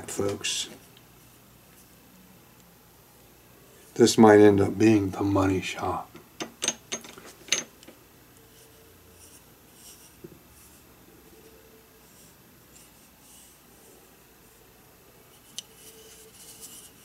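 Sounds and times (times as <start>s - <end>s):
fingers rubbing wooden bowl: 15.3s - 17.0s.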